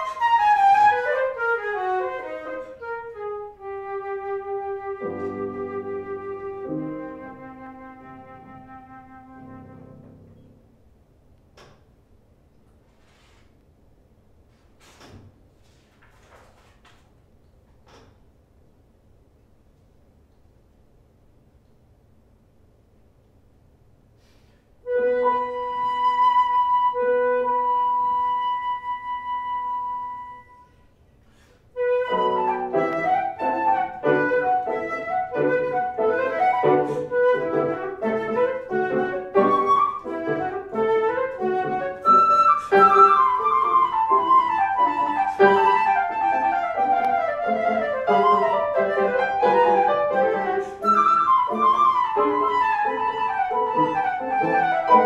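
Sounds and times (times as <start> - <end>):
flute: 0.0 - 10.6, 24.8 - 55.0
piano: 0.0 - 12.0, 24.8 - 55.0.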